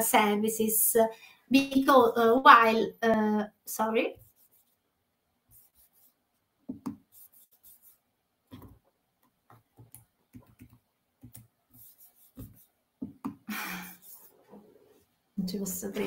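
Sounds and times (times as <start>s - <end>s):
computer keyboard tapping: 8.5s - 11.5s.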